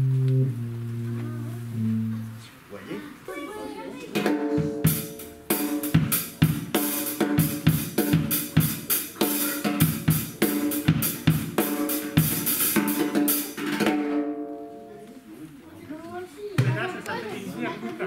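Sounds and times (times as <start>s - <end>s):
drum kit playing a beat: 0.0s - 2.3s, 4.1s - 14.5s.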